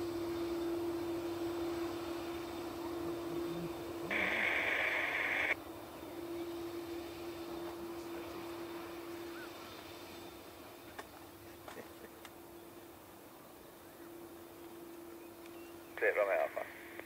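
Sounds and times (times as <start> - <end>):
faint hiss: 0.0 - 14.4
low hum: 0.0 - 17.0
radio static burst: 4.0 - 5.6.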